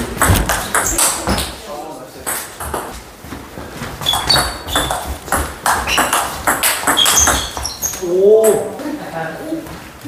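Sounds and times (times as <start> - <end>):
table tennis ball hits: 0.0 - 1.6, 2.2 - 3.0, 4.0 - 8.6.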